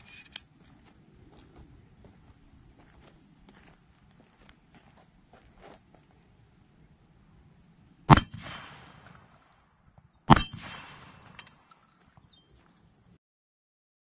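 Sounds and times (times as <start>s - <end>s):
shotgun shots: 8.1s - 9.7s, 10.3s - 11.9s.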